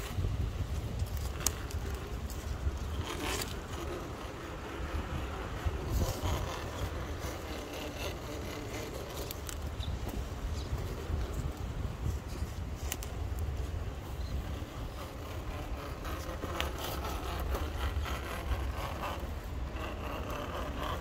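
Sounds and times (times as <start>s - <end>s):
rc car motor and gears whirring: 0.0s - 21.0s
tyres clicking and scraping on rock: 0.0s - 21.0s
wind rumble on microphone: 0.0s - 21.0s.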